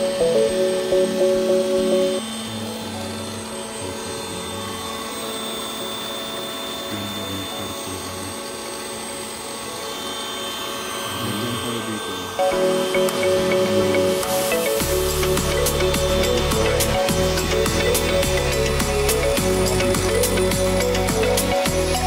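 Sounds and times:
background music with bass figure: 12.5 - 22.0.

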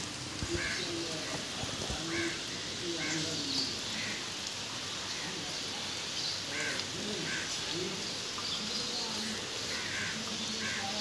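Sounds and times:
rain hissing: 0.0 - 11.0
crows cawing: 0.5 - 1.0, 1.9 - 4.4, 6.5 - 7.6, 9.6 - 11.0.

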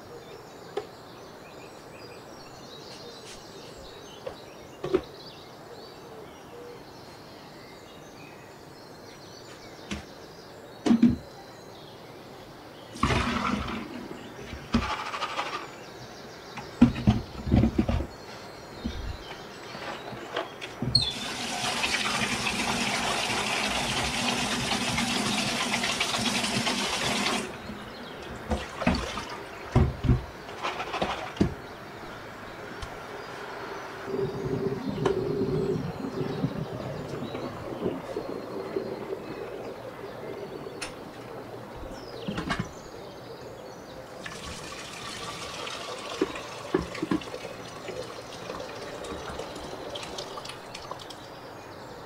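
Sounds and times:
tap water running into sink: 21.0 - 27.6, 44.2 - 51.2.

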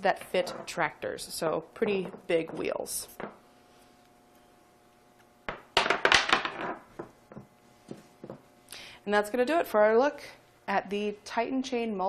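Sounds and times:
object knocking on table: 5.5 - 8.4.

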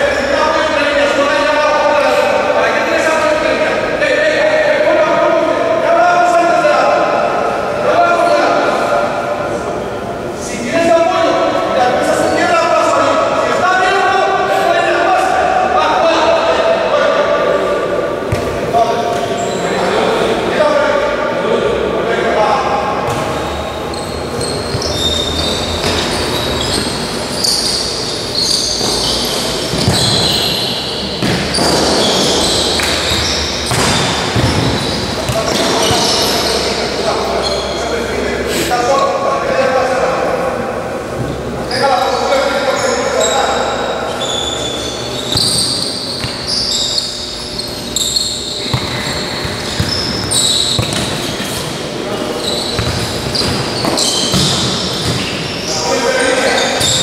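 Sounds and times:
large hall noise: 0.0 - 57.0
shoes squeaking on sports floor: 18.3 - 20.2, 23.1 - 38.7, 41.2 - 57.0.

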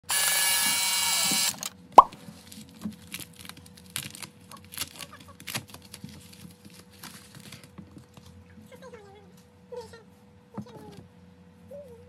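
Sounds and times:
foil envelope crinkling: 2.2 - 8.4.

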